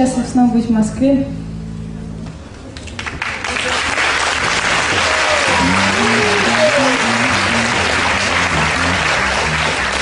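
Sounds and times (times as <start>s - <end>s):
low steady musical notes: 0.0s - 10.0s
audience applauding and cheering: 2.8s - 10.0s.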